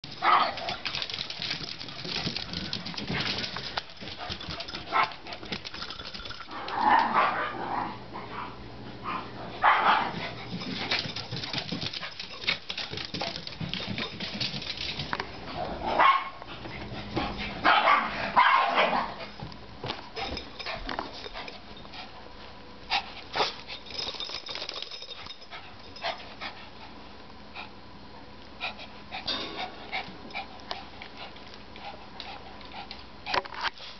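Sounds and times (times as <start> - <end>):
small dogs barking: 0.2 - 0.8, 4.9 - 5.2, 6.6 - 10.2, 15.9 - 16.5, 17.6 - 19.2.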